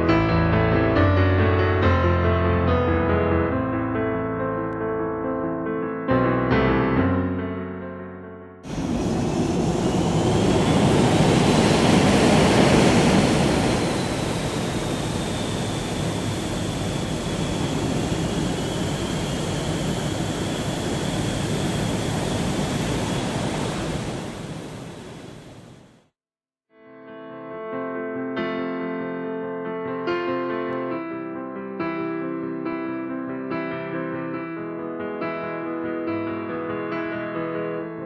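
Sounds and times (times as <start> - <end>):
jet engines roaring: 8.7 - 26.0.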